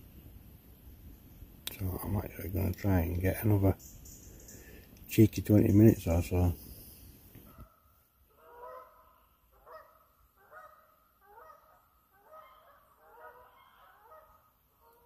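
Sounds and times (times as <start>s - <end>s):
geese honking: 8.3s - 15.0s.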